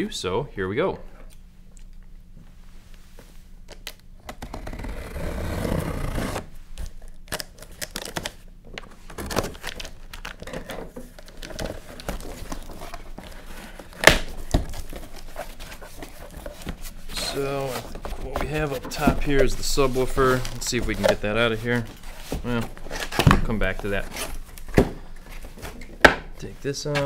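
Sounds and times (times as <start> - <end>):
tape and cardboard crinkling: 6.8 - 26.0.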